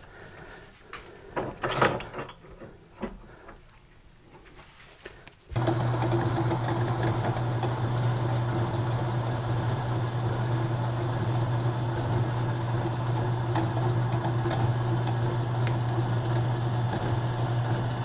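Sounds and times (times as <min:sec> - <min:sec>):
drill press motor humming: 0:05.6 - 0:18.0.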